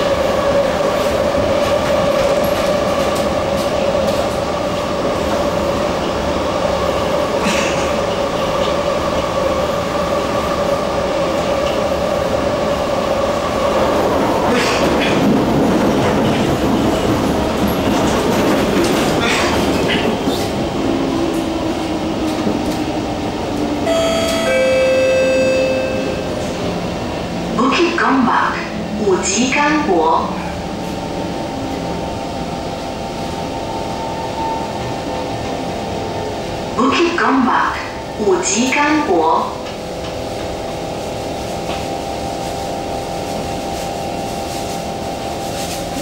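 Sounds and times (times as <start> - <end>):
train rumble and rail noise: 0.0 - 46.0
electronic chime: 23.9 - 26.6.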